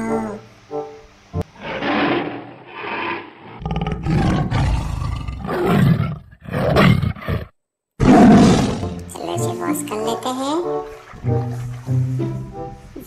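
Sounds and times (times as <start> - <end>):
tiger roaring: 1.5 - 9.0.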